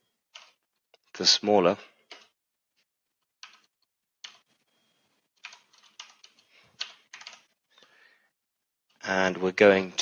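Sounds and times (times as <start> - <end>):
computer keyboard keystrokes: 0.4 - 0.6, 3.4 - 4.4, 5.4 - 7.5.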